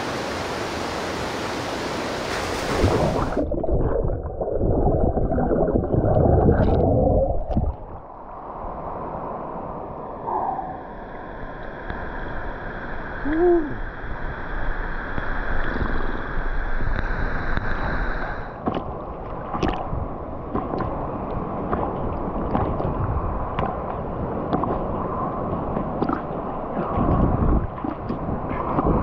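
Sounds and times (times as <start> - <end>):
waterfall water rushing: 0.0 - 3.4.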